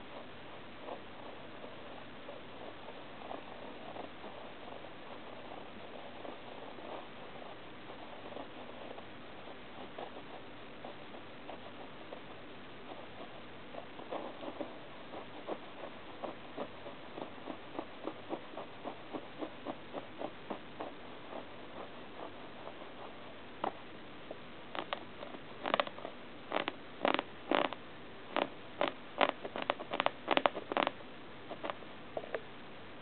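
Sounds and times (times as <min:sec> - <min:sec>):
puppy chewing and gnawing: 0:00.0 - 0:23.8, 0:24.8 - 0:27.8, 0:28.4 - 0:31.8.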